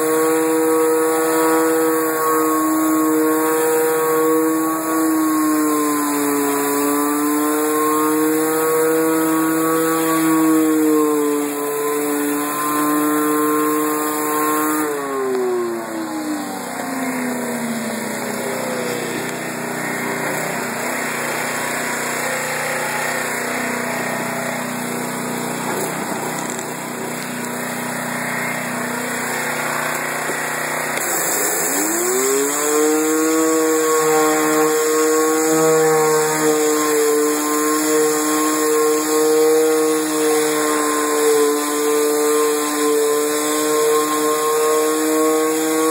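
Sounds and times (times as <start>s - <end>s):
pressure washer engine whine: 0.0s - 45.9s
rushing water spray on brick: 17.5s - 45.9s.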